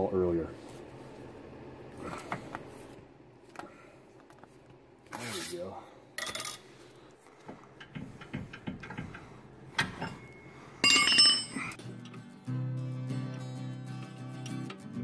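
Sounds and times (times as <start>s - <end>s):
background music: 11.8s - 15.0s.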